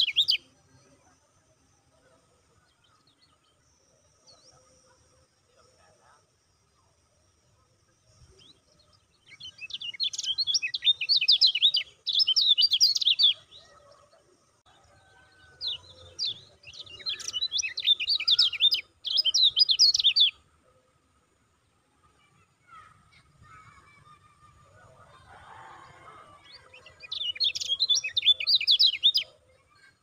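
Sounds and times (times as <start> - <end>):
bird chattering chirps: 0.0 - 0.4, 9.3 - 13.8, 16.2 - 20.4, 26.6 - 29.3.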